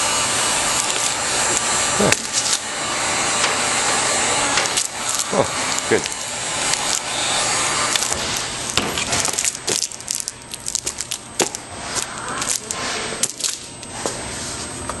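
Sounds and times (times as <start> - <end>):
heat gun blowing hiss: 0.0 - 9.9
plastic film crackling: 0.6 - 2.7, 4.5 - 13.9.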